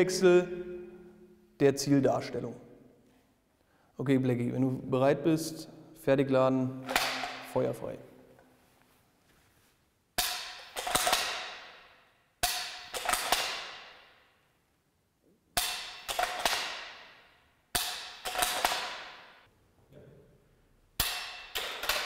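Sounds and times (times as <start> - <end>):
rifle bolt clacking: 17.8 - 19.3.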